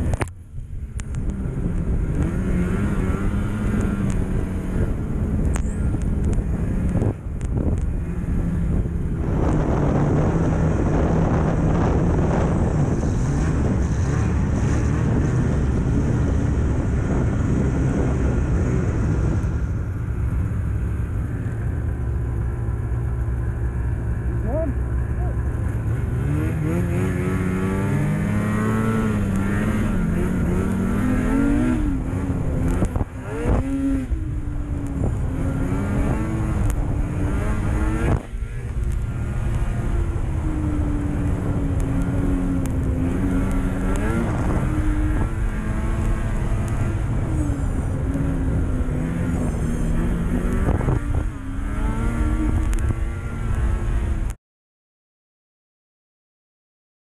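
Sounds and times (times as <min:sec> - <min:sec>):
snowmobile engine revving: 0:01.4 - 0:19.6, 0:24.3 - 0:54.3.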